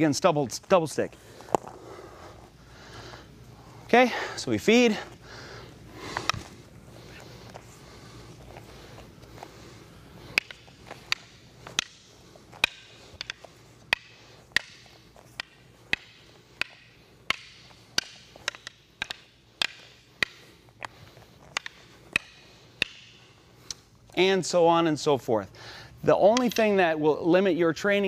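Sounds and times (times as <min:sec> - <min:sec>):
rattan sticks clacking: 0:03.9 - 0:24.3, 0:26.2 - 0:27.0.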